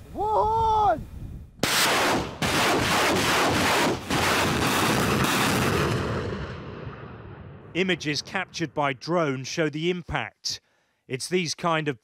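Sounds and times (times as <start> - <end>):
rocket launcher firing salvo: 1.6 - 8.3.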